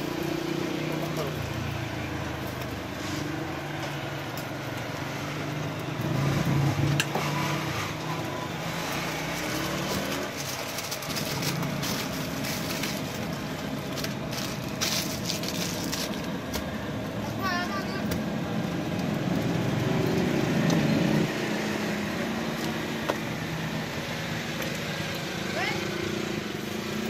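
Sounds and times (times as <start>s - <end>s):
passing traffic: 0.0s - 27.0s
paper wrapping rustle: 7.3s - 16.8s.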